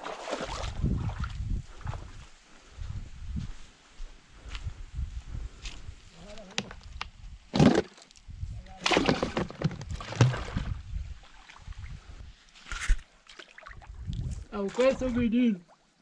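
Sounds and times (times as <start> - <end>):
water splashing and sloshing: 0.0 - 2.3, 7.5 - 16.0
plastic bucket and lid handling: 6.4 - 6.9, 7.5 - 8.0, 8.8 - 10.7.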